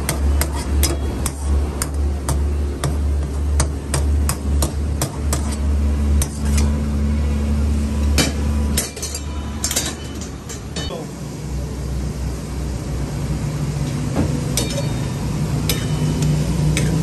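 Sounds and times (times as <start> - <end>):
gas burners roaring: 0.0 - 17.0
sharp metal knocks: 15.6 - 17.0.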